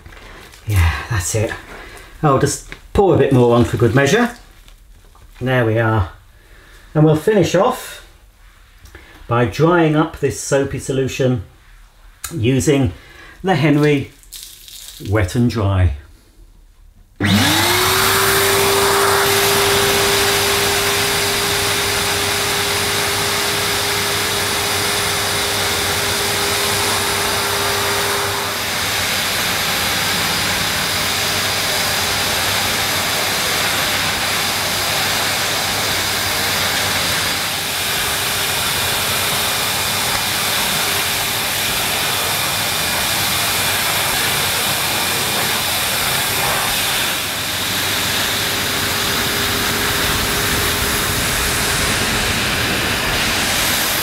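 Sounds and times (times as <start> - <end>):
vacuum cleaner motor whine: 17.2 - 54.0
rushing air sucking water: 17.4 - 54.0.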